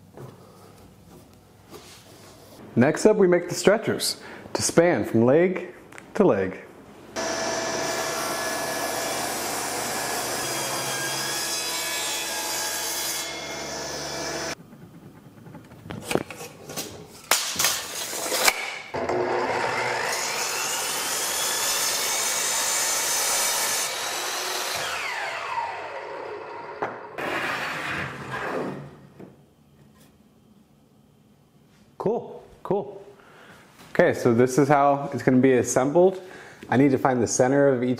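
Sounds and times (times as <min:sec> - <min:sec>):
miter saw whining and cutting: 0:07.2 - 0:14.6, 0:19.0 - 0:28.8
table saw cutting wood: 0:07.2 - 0:14.6, 0:18.1 - 0:28.9.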